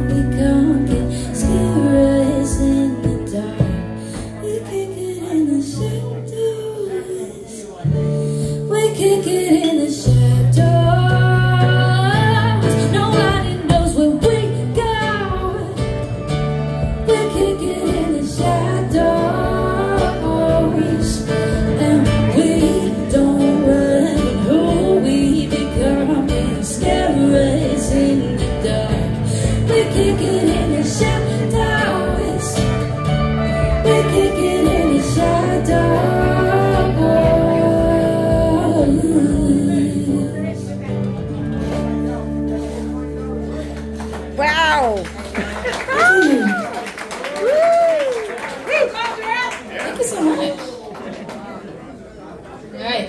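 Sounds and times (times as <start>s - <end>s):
live band playing: 0.0s - 6.5s, 7.9s - 47.9s
woman singing: 0.0s - 41.0s.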